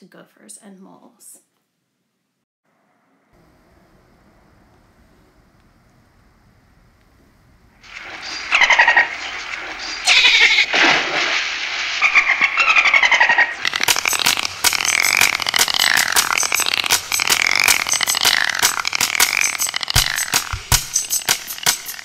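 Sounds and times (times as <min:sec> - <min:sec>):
dolphins whistling: 0:07.8 - 0:22.0
echolocation clicks: 0:13.6 - 0:22.0.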